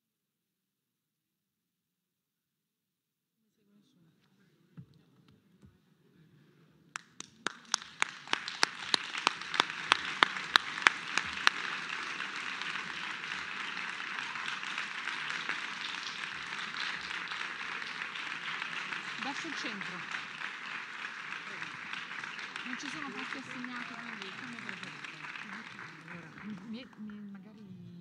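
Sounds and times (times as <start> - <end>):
loud close hand claps: 7.0 - 27.2
audience applauding: 7.0 - 28.0.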